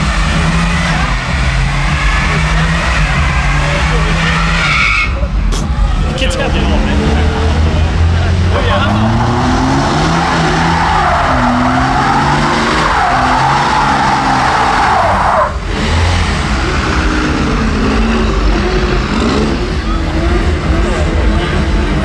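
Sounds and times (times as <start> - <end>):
high-revving car engine: 0.0 - 22.0
tyres squealing: 8.5 - 15.6.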